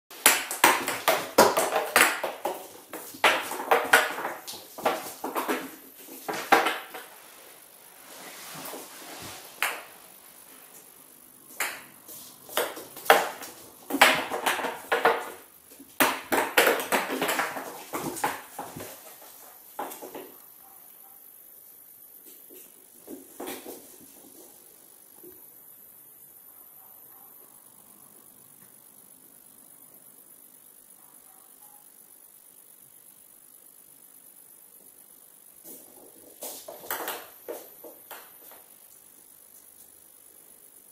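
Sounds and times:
toy ball clattering on hard floor: 0.2 - 7.2, 11.5 - 20.4, 36.2 - 38.7.

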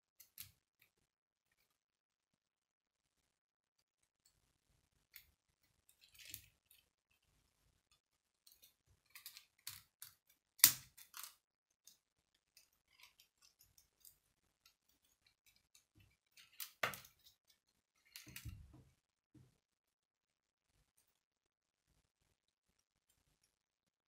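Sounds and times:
plastic pieces clicking together: 8.5 - 11.4.

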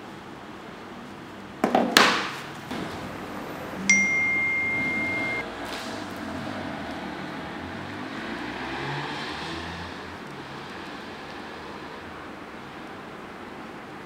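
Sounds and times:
phone notification ding: 3.8 - 5.4.

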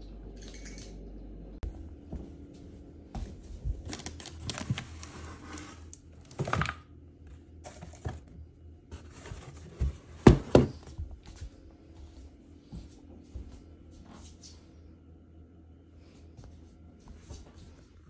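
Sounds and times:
cardboard boxes rustling on floor: 3.2 - 6.7, 7.6 - 11.3.

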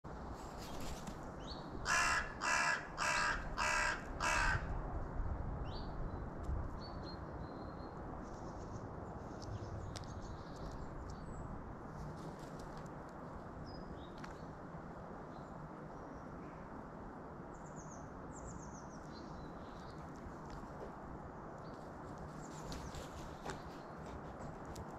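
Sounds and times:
crow cawing: 1.8 - 4.8
small birds chirping: 6.8 - 11.5.

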